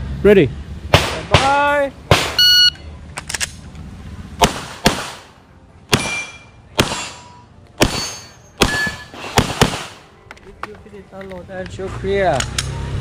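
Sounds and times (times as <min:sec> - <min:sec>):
pistol shots: 0:04.4 - 0:10.1
metallic ringing of steel targets: 0:05.9 - 0:09.7.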